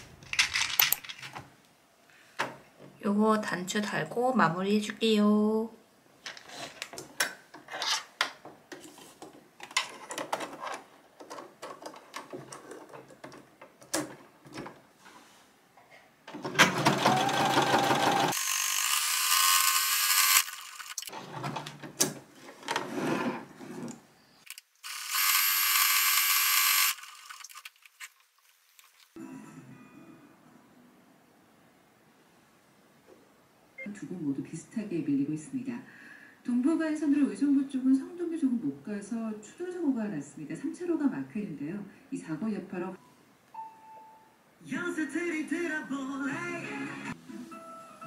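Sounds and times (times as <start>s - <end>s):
sewing machine stitching: 16.3s - 18.6s.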